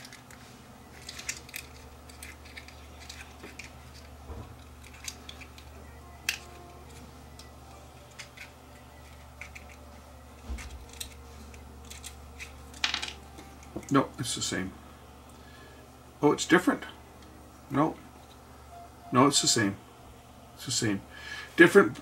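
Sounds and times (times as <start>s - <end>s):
plastic parts clicking: 0.0s - 14.0s
low hum: 0.0s - 22.0s.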